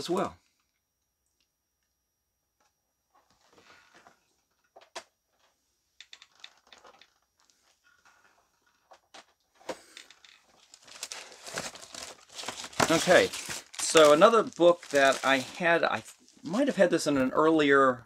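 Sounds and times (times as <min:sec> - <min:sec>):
plastic bag rustling: 0:06.1 - 0:08.8, 0:10.1 - 0:16.6.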